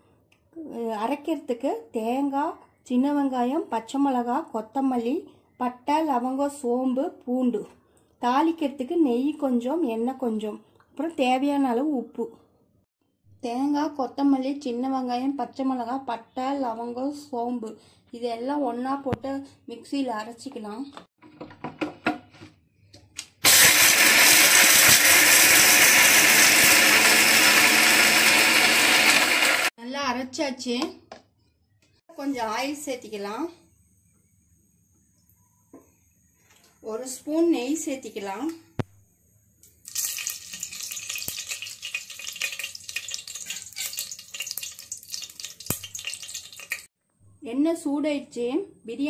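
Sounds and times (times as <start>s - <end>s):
ghee sizzling in hot oil: 23.4s - 29.7s, 39.7s - 46.9s
mixer grinder running: 23.4s - 29.7s.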